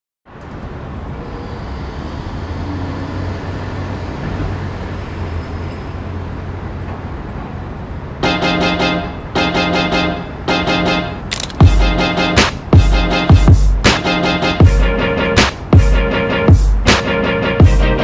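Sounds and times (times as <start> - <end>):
road traffic hum: 0.3 - 18.0
loud music with stacked chords: 9.8 - 18.0.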